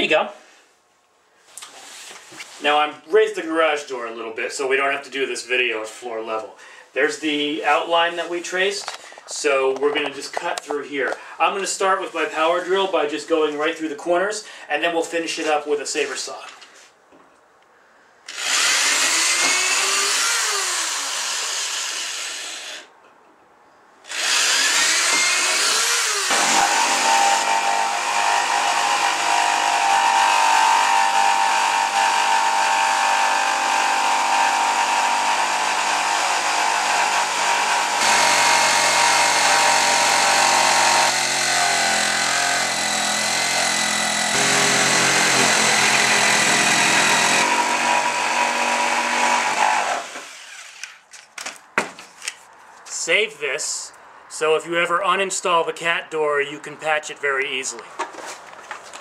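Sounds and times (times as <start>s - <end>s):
power drill boring: 18.3s - 22.9s, 24.1s - 51.0s.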